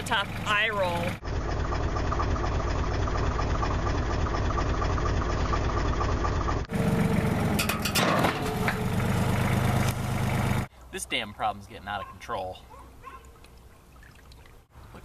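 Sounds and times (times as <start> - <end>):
louder humming engine: 0.0 - 10.7
tractor engine running: 0.0 - 10.8.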